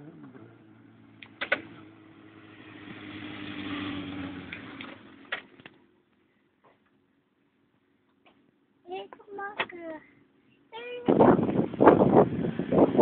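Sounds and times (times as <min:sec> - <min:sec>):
motorcycle engine passing by: 0:00.0 - 0:05.4.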